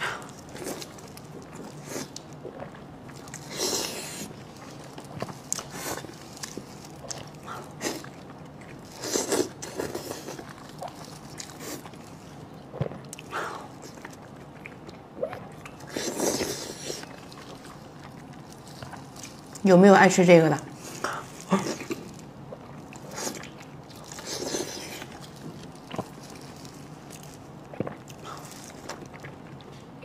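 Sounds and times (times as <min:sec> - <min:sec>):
person biting and chewing food: 0:20.8 - 0:30.0.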